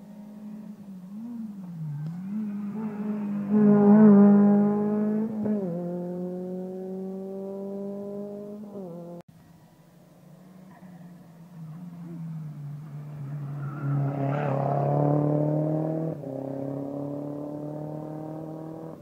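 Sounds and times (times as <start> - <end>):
rally car engine at full throttle: 0.0 - 9.2, 10.1 - 19.0.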